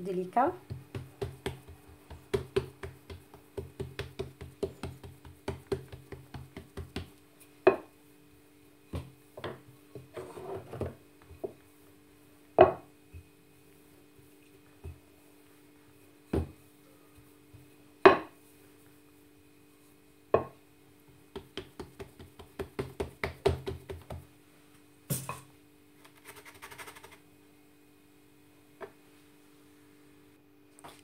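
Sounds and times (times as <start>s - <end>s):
rolling pin knocking on board: 0.6s - 7.1s, 21.3s - 24.2s.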